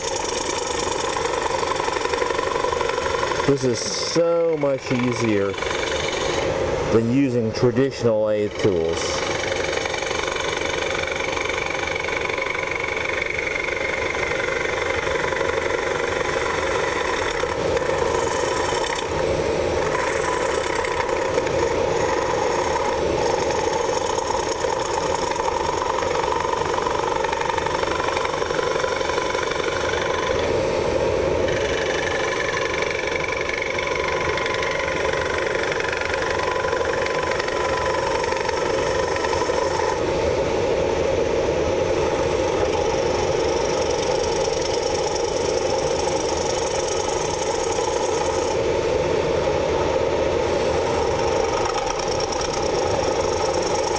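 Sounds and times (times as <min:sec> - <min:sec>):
tool scraping wood: 0:00.0 - 0:06.5, 0:08.4 - 0:19.2, 0:19.8 - 0:30.5, 0:31.5 - 0:40.0
dust collector running: 0:00.0 - 0:53.9
lathe drone: 0:00.0 - 0:53.9.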